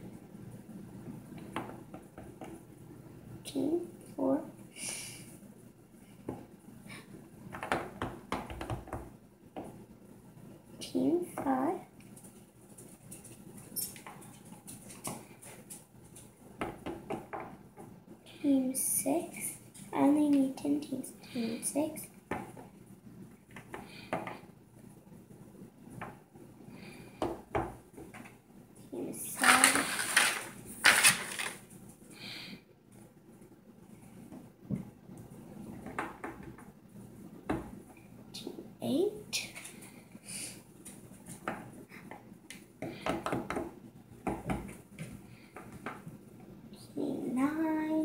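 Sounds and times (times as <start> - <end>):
plastic toys clattering on wood: 29.3 - 31.6.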